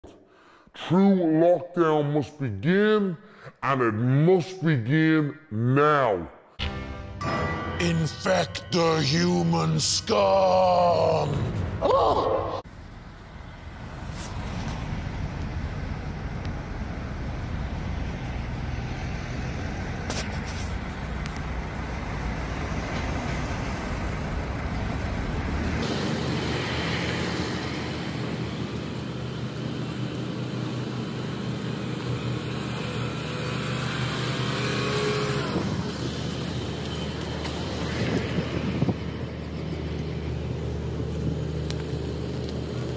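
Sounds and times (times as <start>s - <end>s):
car engine and tyre noise: 12.6s - 42.9s
cars passing: 12.7s - 42.9s.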